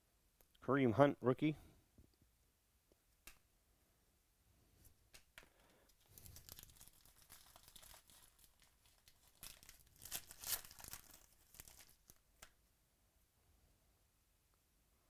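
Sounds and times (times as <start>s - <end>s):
foil wrapper tearing and crinkling: 6.0s - 12.5s.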